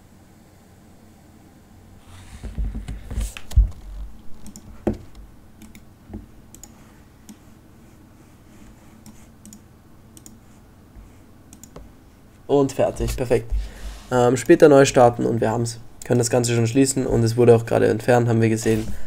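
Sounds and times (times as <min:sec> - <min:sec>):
computer mouse clicks: 0:04.4 - 0:07.4, 0:09.0 - 0:10.4, 0:11.5 - 0:11.8.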